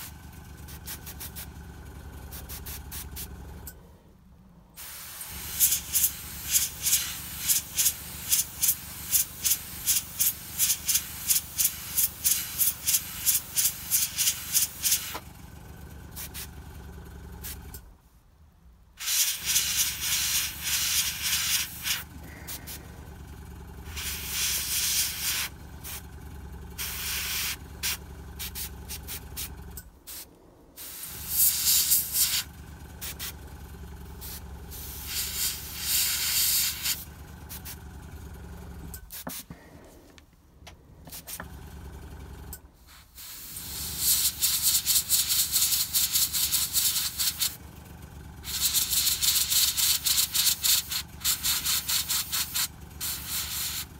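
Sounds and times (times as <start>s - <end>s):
steady low hum: 0.0s - 44.4s
airbrush spraying in hissing bursts: 0.7s - 1.5s, 2.3s - 3.4s, 4.8s - 15.2s, 16.2s - 16.5s, 19.0s - 22.9s, 23.9s - 26.0s, 26.8s - 29.5s, 30.1s - 33.3s, 34.2s - 37.8s, 39.1s - 39.6s, 42.8s - 47.6s, 48.4s - 53.9s.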